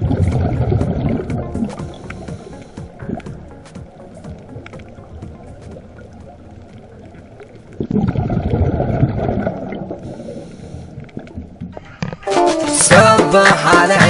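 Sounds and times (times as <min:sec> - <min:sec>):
underwater bubbles rumbling: 0:00.0 - 0:12.2
faint crackling: 0:00.0 - 0:12.9.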